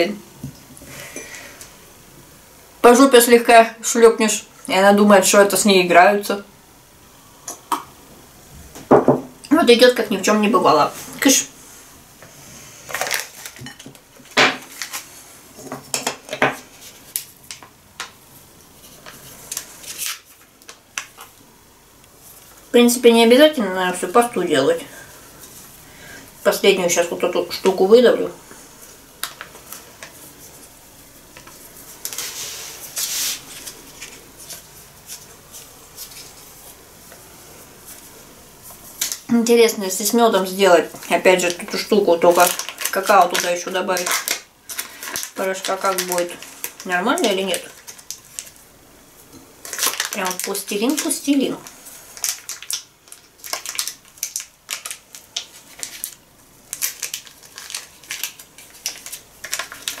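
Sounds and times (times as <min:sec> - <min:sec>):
plastic packet crinkling: 0:12.9 - 0:15.2, 0:18.8 - 0:21.4, 0:38.9 - 0:48.7, 0:49.6 - 1:00.0.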